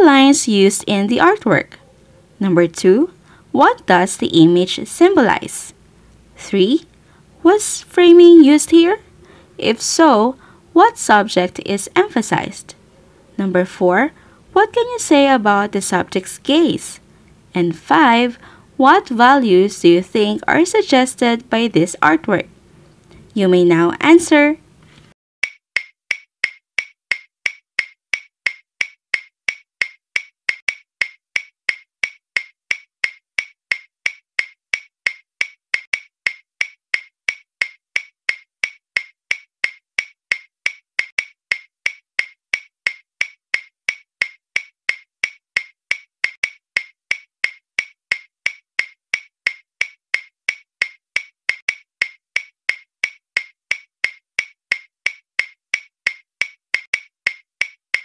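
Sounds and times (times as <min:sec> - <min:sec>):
clock ticking sound effect: 0:25.4 - 0:58.0.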